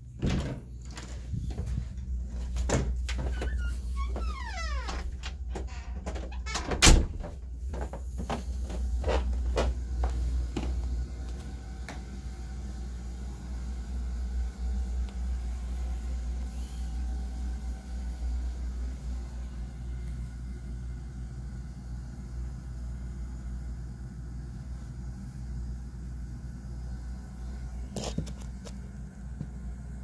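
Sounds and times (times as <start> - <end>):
steady low rumble: 0.0 - 16.5
footsteps on carpeted stairs: 0.1 - 12.2.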